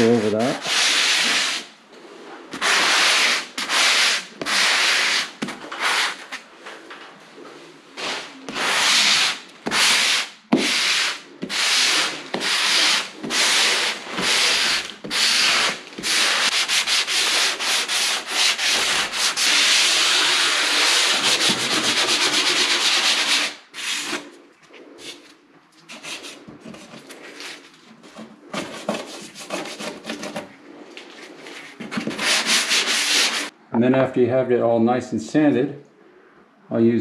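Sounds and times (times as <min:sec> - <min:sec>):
sanding block scraping drywall: 0:00.0 - 0:01.7, 0:02.5 - 0:06.4, 0:08.0 - 0:24.3, 0:25.9 - 0:30.4, 0:31.2 - 0:33.5.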